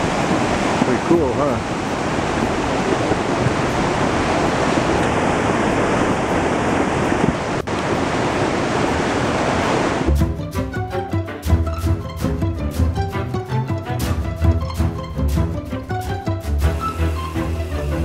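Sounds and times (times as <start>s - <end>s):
flood water rushing: 0.0s - 18.0s
music: 10.1s - 18.0s.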